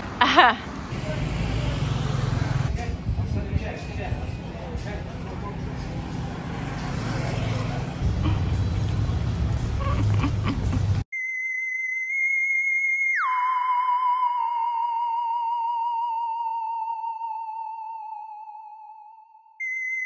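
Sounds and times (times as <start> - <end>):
wavering electronic tone: 11.2 - 20.0.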